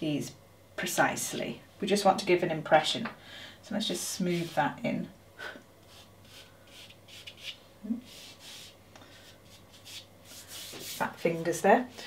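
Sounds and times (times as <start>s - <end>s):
fingertips rubbing pastel on paper: 4.3s - 4.6s, 5.9s - 8.8s, 9.4s - 11.4s.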